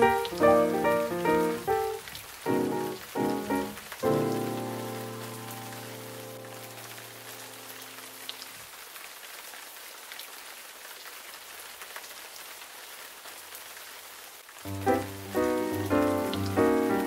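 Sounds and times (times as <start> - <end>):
rain-like hiss: 0.0 - 17.0
soft background music chord: 14.7 - 17.0.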